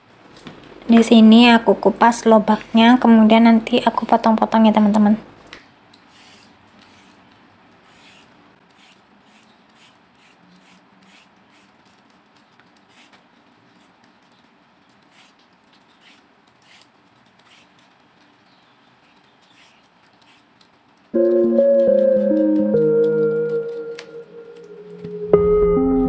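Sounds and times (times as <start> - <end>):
vegetable peeler scraping: 6.0 - 14.0, 15.0 - 18.0, 19.0 - 20.8.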